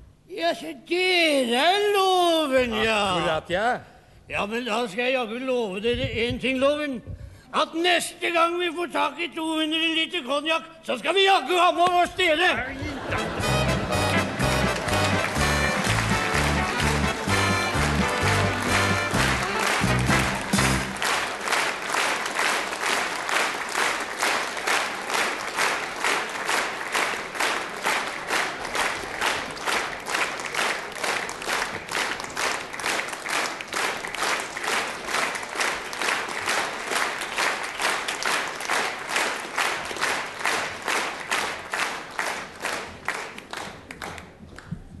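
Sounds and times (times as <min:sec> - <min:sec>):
audience clapping in unison: 0:12.8 - 0:45.0.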